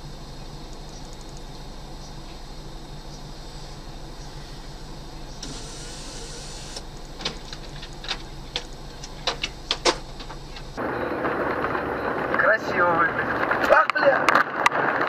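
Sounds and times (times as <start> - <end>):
vehicle interior hum: 0.0 - 13.7
hiss: 5.4 - 6.8
sharp clicks and knocks: 6.9 - 10.8.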